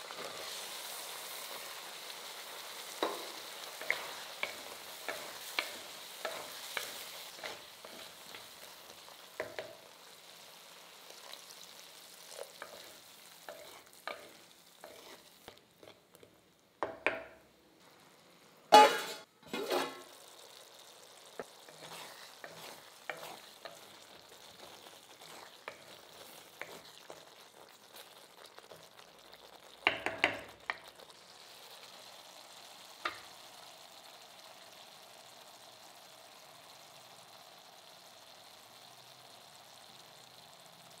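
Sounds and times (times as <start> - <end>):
gravy bubbling and sizzling: 0.0 - 41.0
spatula scraping pan: 2.2 - 8.7, 12.2 - 17.0, 18.7 - 20.2, 21.3 - 29.0.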